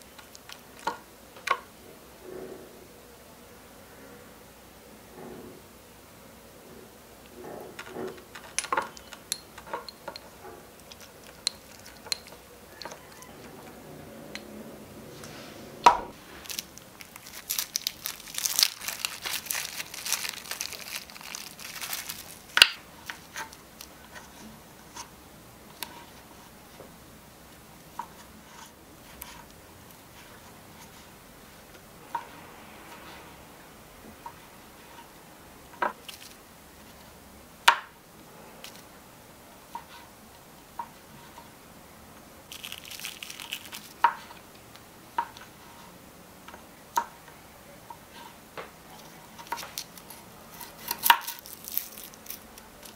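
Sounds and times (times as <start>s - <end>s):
plastic packaging crinkling: 10.8s - 13.3s, 16.2s - 24.0s, 36.0s - 36.4s, 42.5s - 44.4s, 49.0s - 52.9s.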